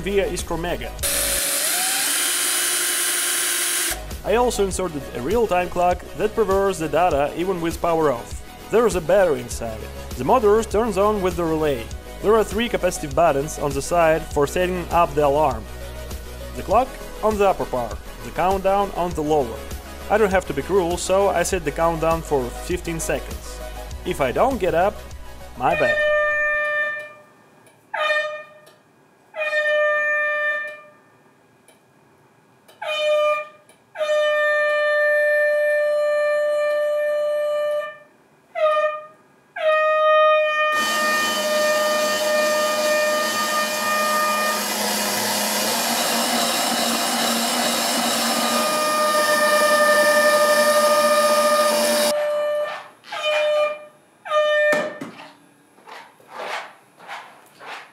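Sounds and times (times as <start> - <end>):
mechanical shredder motors running: 1.0 - 4.0, 40.8 - 52.2.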